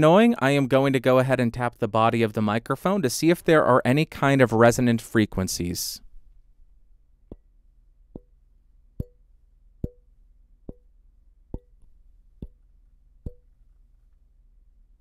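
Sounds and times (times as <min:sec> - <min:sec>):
fingertip tapping metal microphone: 0:07.2 - 0:07.5, 0:08.1 - 0:08.4, 0:09.0 - 0:09.2, 0:09.8 - 0:10.9, 0:11.5 - 0:13.6.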